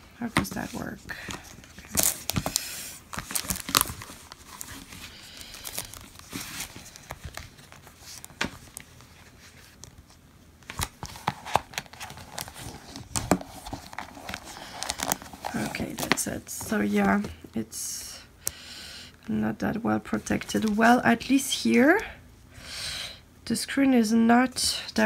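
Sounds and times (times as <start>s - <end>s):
plastic packaging crinkling: 0.5s - 17.3s.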